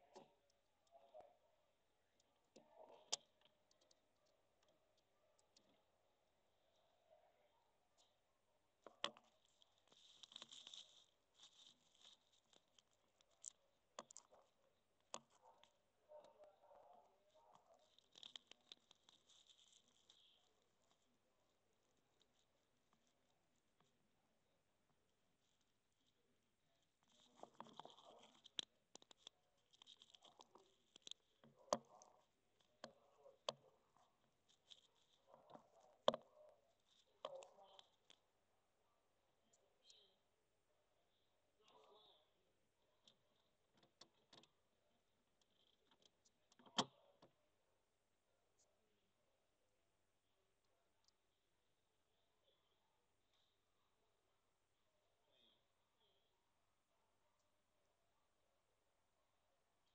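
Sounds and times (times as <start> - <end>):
faint scratchy rustles: 8.8 - 38.5.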